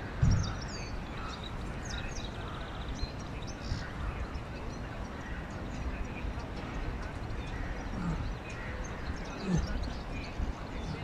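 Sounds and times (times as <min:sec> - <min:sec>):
small birds chirping: 0:00.0 - 0:11.0
dull low thump: 0:00.2 - 0:00.6.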